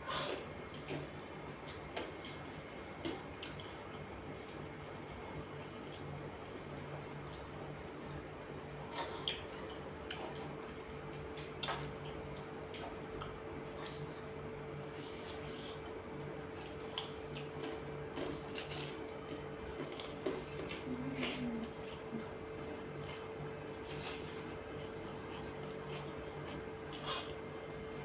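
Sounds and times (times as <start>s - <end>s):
steady low hum: 0.0s - 28.0s
wet chewing and lip smacks: 0.7s - 5.0s, 9.0s - 27.5s.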